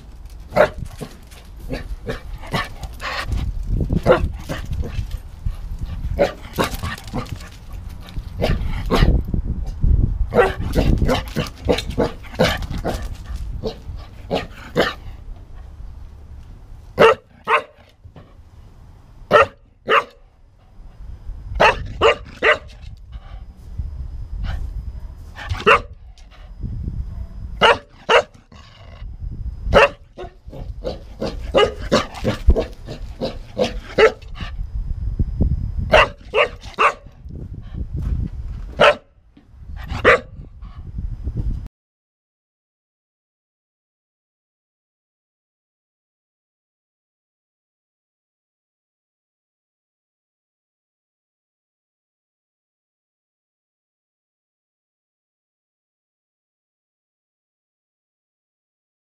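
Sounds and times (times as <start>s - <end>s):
bumping and rustling at microphone: 0.0s - 15.8s, 30.5s - 41.7s
dog barking: 0.6s - 0.8s, 4.0s - 4.3s, 6.2s - 7.2s, 10.3s - 13.0s, 13.6s - 15.0s, 17.0s - 17.8s, 19.3s - 20.2s, 21.6s - 22.7s, 25.5s - 26.0s, 27.2s - 28.4s, 29.7s - 34.3s, 35.9s - 37.1s, 38.8s - 39.1s, 40.0s - 40.4s.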